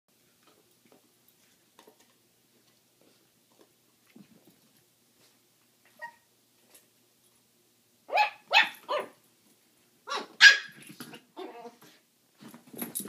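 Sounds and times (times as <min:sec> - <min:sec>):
small dogs barking: 0:08.1 - 0:09.2, 0:10.1 - 0:10.8.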